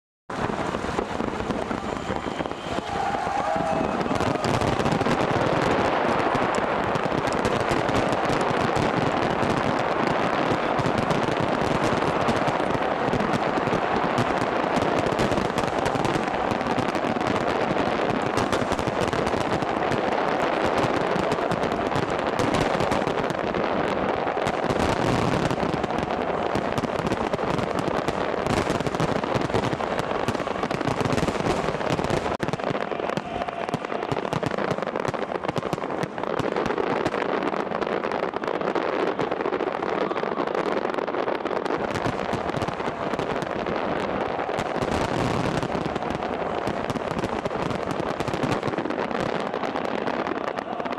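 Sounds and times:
fireworks crackling and banging: 0.3 - 50.9.

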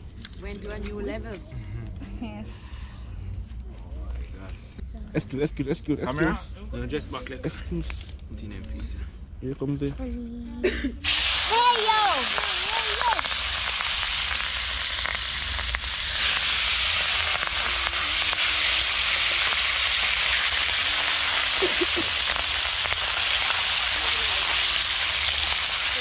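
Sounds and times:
food sizzling in hot oil: 11.0 - 26.0.

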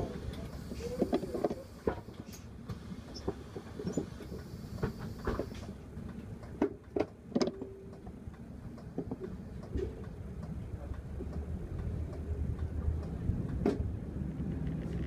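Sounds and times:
bus engine idling: 0.0 - 15.0
clicks and knocks from fittings: 6.4 - 8.2.

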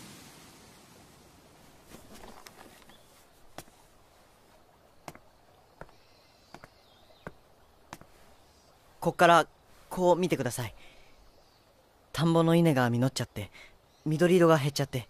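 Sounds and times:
footsteps on a path: 1.8 - 8.4.

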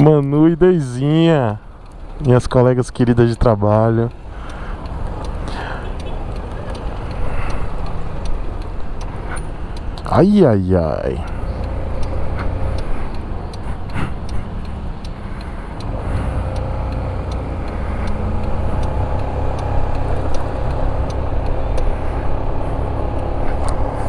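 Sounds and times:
wind and road rumble: 0.0 - 24.0.

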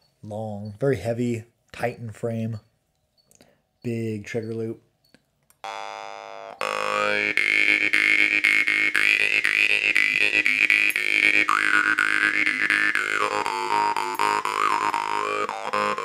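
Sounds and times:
jaw harp buzzing drone: 5.6 - 16.0.

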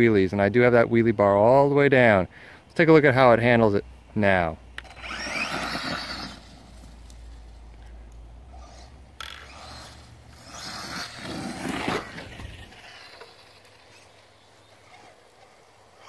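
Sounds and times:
rc truck motor and tyres rushing: 4.8 - 16.0.

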